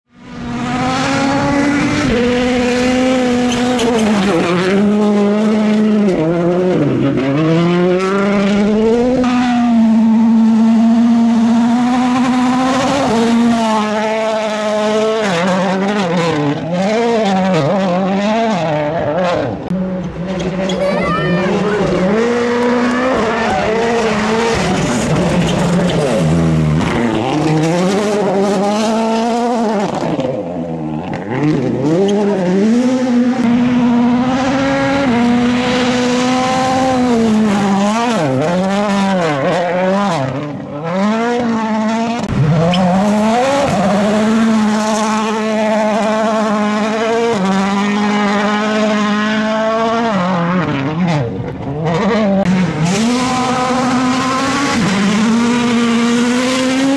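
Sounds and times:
rally car engines revving hard: 0.1s - 56.9s.

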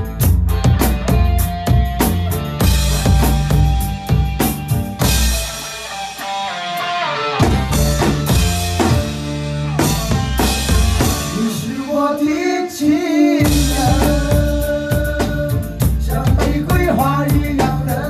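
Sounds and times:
drum kit playing: 0.0s - 18.0s
pop song track: 4.5s - 18.0s.

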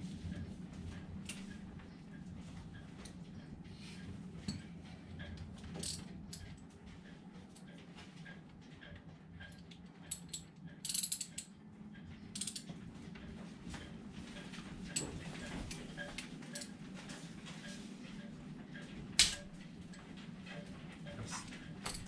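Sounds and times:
ratchet wrench clicking: 10.1s - 11.5s, 12.4s - 12.6s
small metallic clinks: 10.1s - 11.5s.

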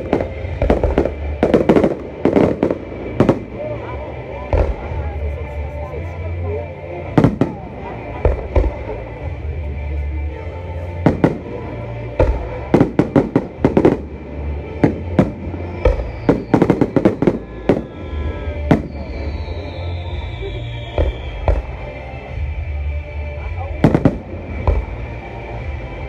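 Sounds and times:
falling firework whistle: 15.6s - 21.8s.

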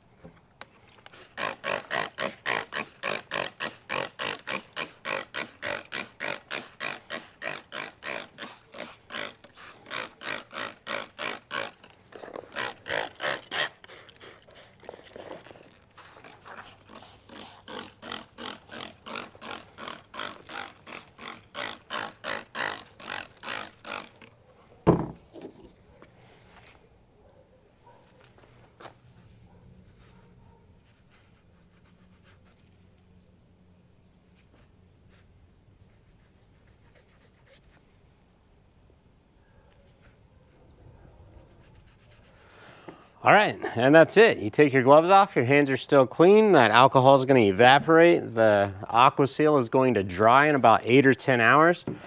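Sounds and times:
spray bottle squirting: 1.0s - 24.3s
loud thump: 24.9s - 25.2s.

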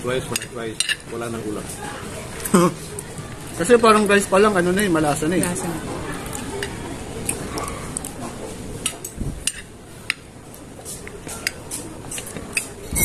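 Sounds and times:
cutlery clinking on a plate: 11.3s - 13.0s.

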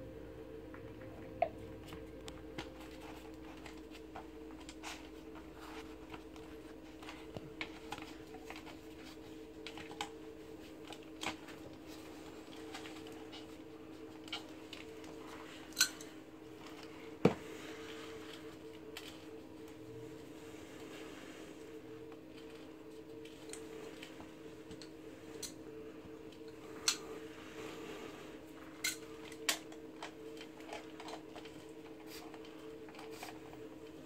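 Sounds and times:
faint steady hum: 0.0s - 34.0s.

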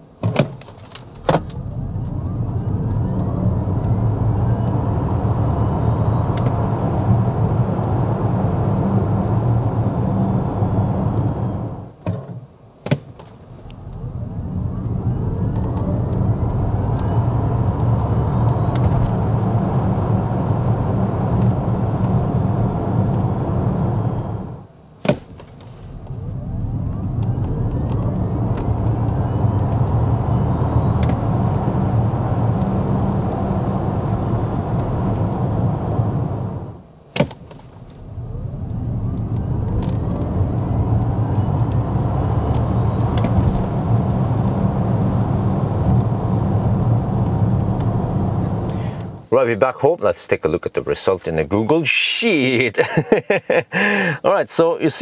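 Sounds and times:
electric motor whine: 1.4s - 11.9s, 13.6s - 24.7s, 25.9s - 36.8s, 37.8s - 49.2s
tyre and wind noise rumble: 37.4s - 49.2s.

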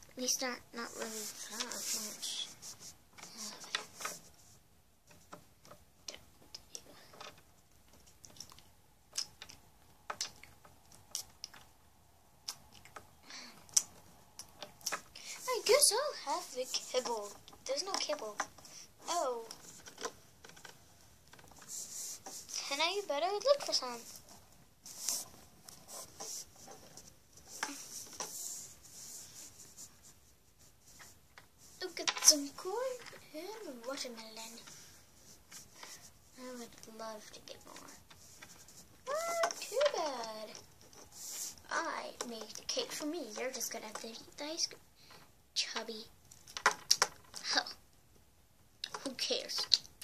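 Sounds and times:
plastic toys clicking and rustling: 5.1s - 11.7s, 16.7s - 21.7s, 31.9s - 34.8s, 39.1s - 41.0s, 42.1s - 47.8s, 48.8s - 49.9s
plastic toys clicking on wood: 17.0s - 18.7s, 32.0s - 33.2s, 42.2s - 47.6s, 48.8s - 50.0s.

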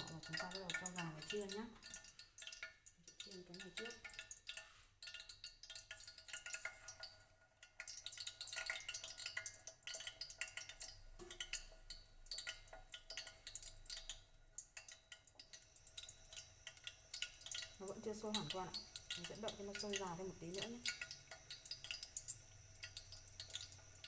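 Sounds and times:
chopsticks tapping on metal: 0.0s - 5.9s
faint steady hum: 0.0s - 24.0s
oil crackling: 0.0s - 24.0s.

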